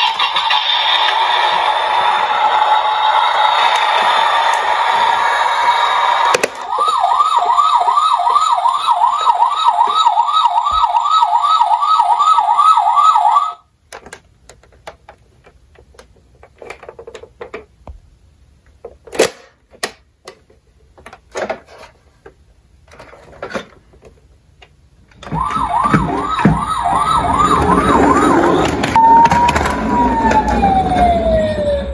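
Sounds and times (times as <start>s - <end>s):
toy siren yelping: 2.0s - 13.6s, 25.3s - 31.9s.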